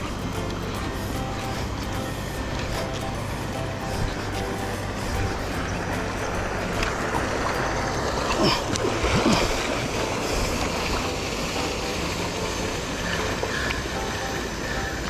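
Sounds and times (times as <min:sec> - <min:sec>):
waves splashing: 0:00.0 - 0:15.0.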